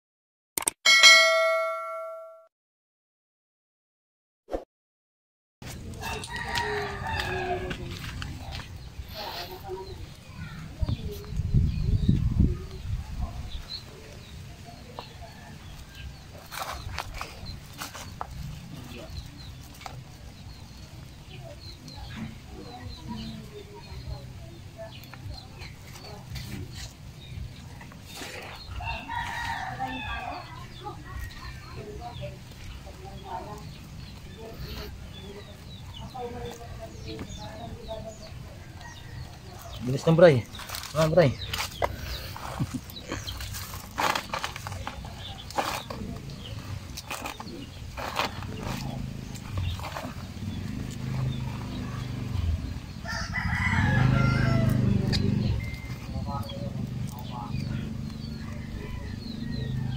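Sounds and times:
small birds chirping: 5.7s - 59.9s
rooster crowing: 6.0s - 7.8s, 28.8s - 30.6s, 53.0s - 55.0s, 58.4s - 59.9s.

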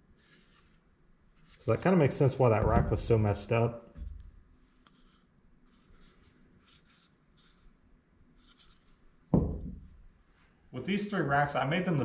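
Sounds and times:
low thump: 2.6s - 3.3s, 9.3s - 9.9s.

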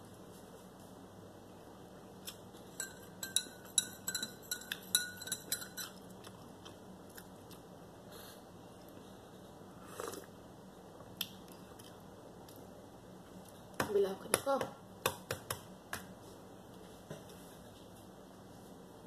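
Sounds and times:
spoon clinking in ceramic mug: 2.7s - 6.0s.

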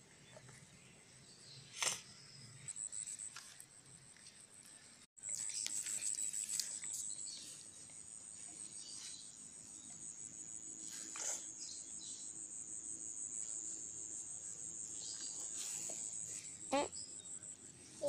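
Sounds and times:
crickets trilling: 5.2s - 18.0s.

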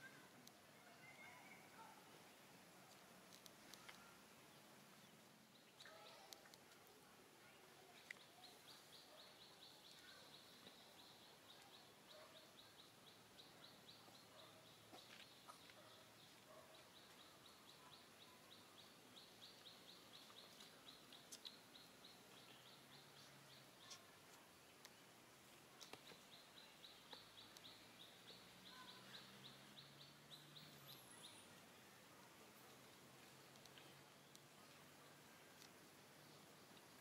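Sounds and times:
soft clicks: 33.5s - 34.5s.

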